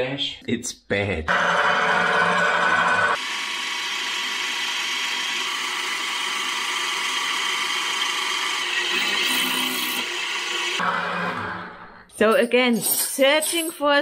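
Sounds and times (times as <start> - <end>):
drill press drilling metal: 1.9 - 11.7.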